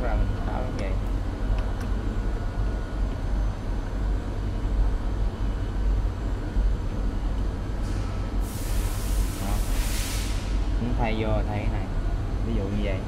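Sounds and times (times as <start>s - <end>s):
hiss: 7.9s - 10.6s.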